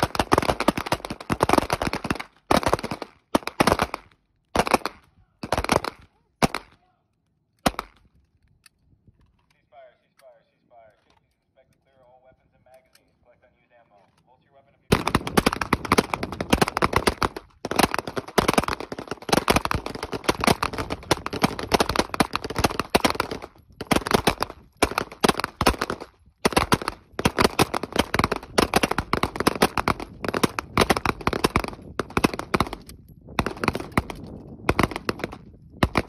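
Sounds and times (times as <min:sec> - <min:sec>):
rapid pistol gunfire: 0:00.0 - 0:06.8, 0:07.6 - 0:08.0, 0:14.9 - 0:36.0.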